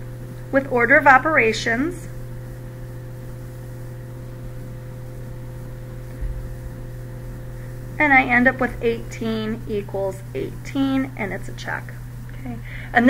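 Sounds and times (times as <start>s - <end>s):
low electrical hum: 0.0s - 13.0s
soft low bump: 5.9s - 7.6s.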